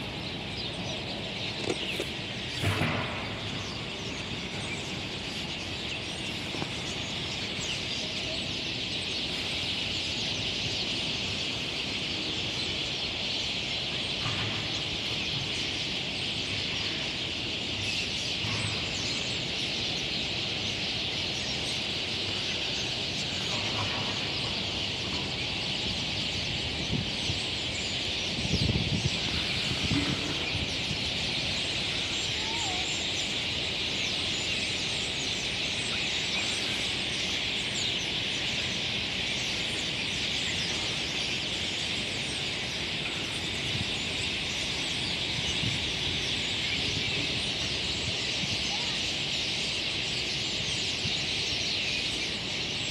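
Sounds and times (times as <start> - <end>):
flock of starlings chattering: 0.0 - 52.9.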